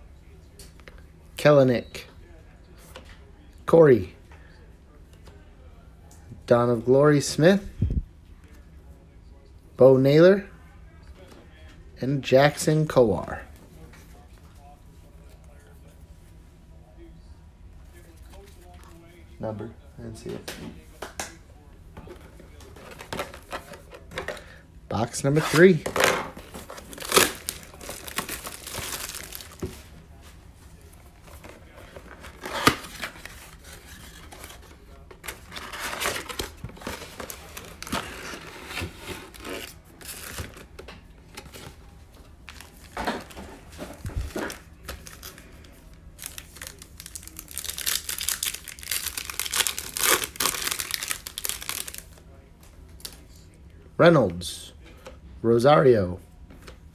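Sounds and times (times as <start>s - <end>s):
foil pack crinkling: 25.4s - 29.9s, 43.9s - 52.2s
cardboard rustling and tearing: 25.6s - 29.7s, 31.9s - 40.7s.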